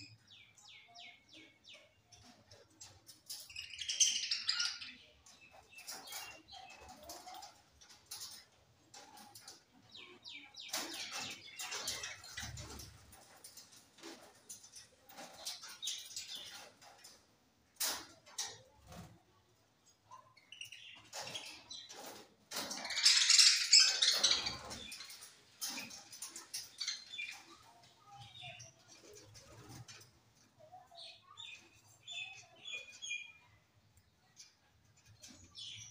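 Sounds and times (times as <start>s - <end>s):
budgerigars chirping and chattering: 0.0s - 13.4s, 20.4s - 29.9s, 31.2s - 33.5s.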